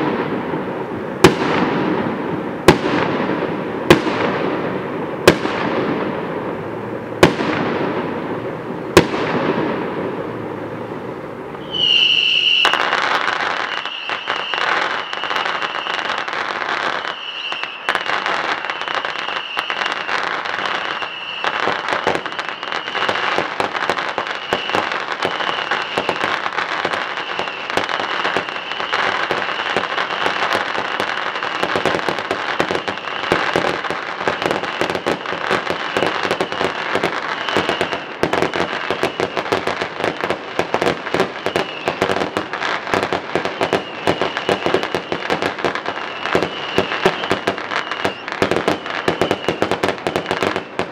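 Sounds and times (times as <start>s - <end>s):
fireworks crackling: 0.0s - 50.9s.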